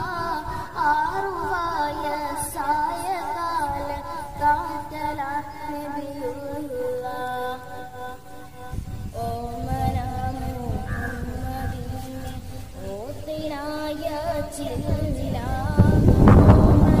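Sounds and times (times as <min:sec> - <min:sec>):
child singing: 0:00.0 - 0:17.0.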